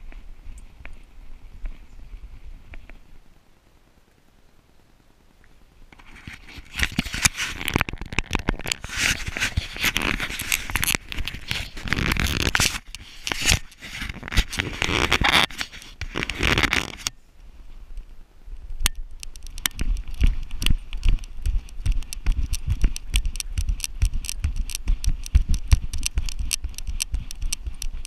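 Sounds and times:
fur rubbing against camera housing: 0:06.0 - 0:17.1
sharp clicks: 0:18.8 - 0:28.0.

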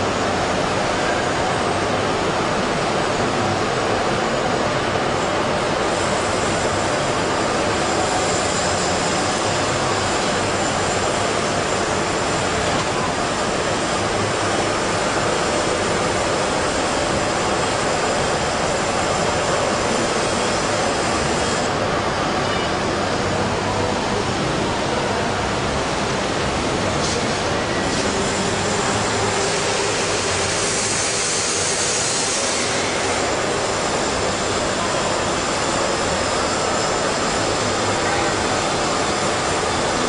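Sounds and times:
hydraulic pump running: 0:00.0 - 0:40.0
faint high whine: 0:06.7 - 0:26.3.

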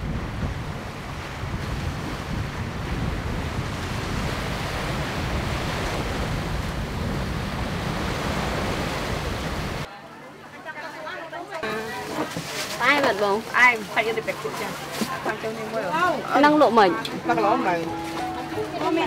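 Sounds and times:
sea waves washing on shore: 0:00.0 - 0:09.9
wind on microphone: 0:00.0 - 0:09.9.

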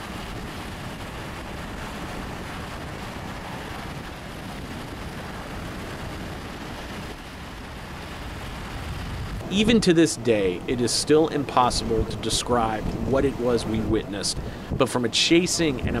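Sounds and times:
vehicle road and wind noise: 0:00.0 - 0:16.0.

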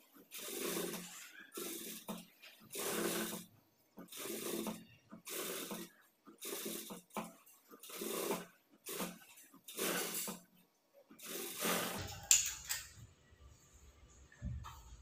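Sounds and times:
sewing machine stitching bursts: 0:00.2 - 0:07.2, 0:07.8 - 0:10.4, 0:11.2 - 0:12.4.

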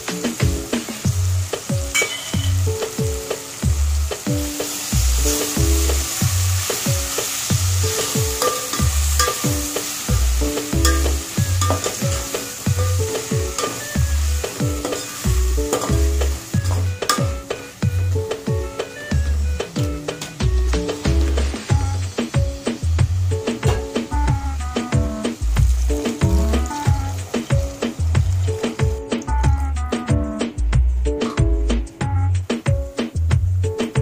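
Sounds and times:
vegetables sizzling in a pot: 0:00.0 - 0:30.7
background music with steady beat: 0:00.0 - 0:34.0
metal spatula stirring: 0:01.9 - 0:02.6, 0:06.7 - 0:17.7.

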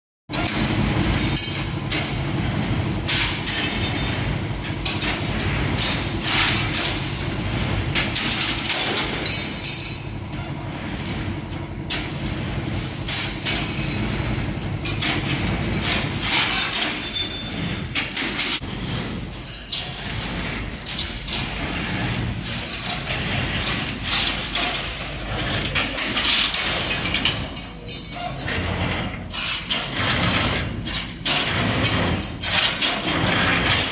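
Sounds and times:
metal clanks and knocks: 0:00.3 - 0:33.9
workshop machinery humming: 0:00.3 - 0:33.9.

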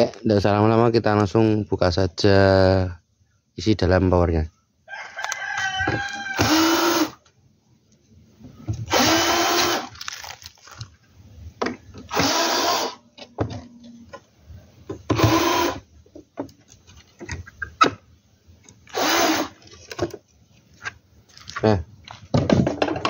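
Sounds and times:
cordless drill whirring: 0:06.4 - 0:07.2, 0:08.9 - 0:09.9, 0:12.1 - 0:13.0, 0:15.1 - 0:15.8, 0:18.9 - 0:19.6
handling clicks and knocks: 0:19.6 - 0:23.0.

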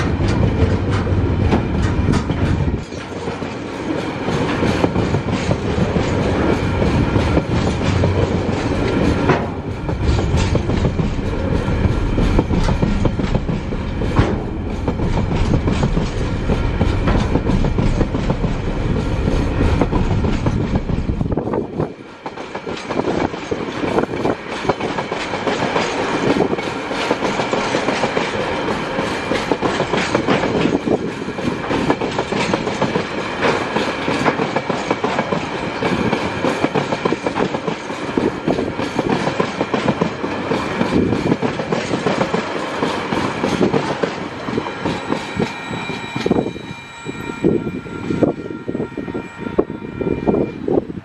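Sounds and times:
train wheels clicking over rail joints: 0:00.0 - 0:46.6
high steady ringing: 0:44.2 - 0:50.7.

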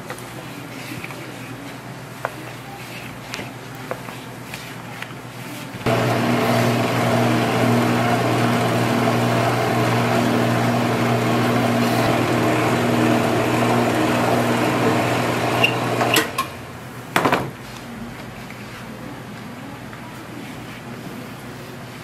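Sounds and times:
noodle cutting machine motor hum: 0:05.9 - 0:16.6.

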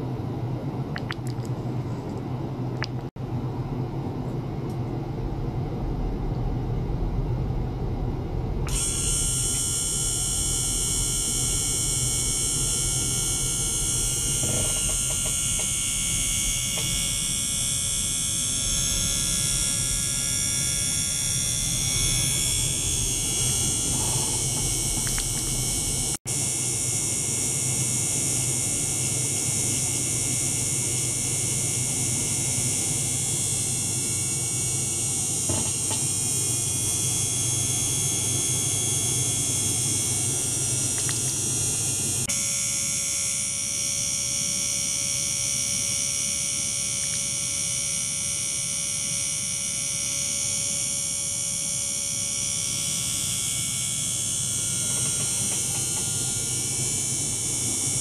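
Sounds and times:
steady mid-pitched tone: 0:05.0 - 0:26.2
pump motor buzzing and hissing: 0:08.3 - 0:58.0.

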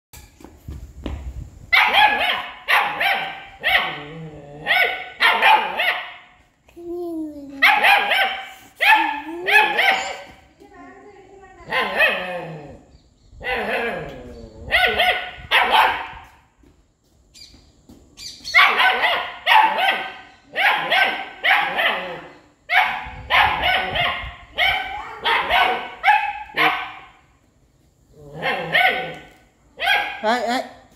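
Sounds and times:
puppy yapping: 0:07.6 - 0:10.4, 0:18.5 - 0:27.1, 0:28.4 - 0:30.3.

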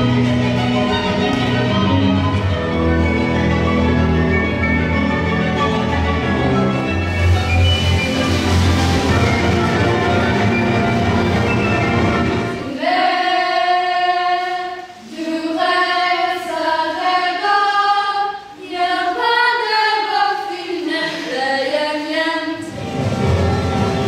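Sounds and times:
instrumental music: 0:00.0 - 0:17.1, 0:22.6 - 0:24.0
women singing in harmony: 0:12.5 - 0:22.7.

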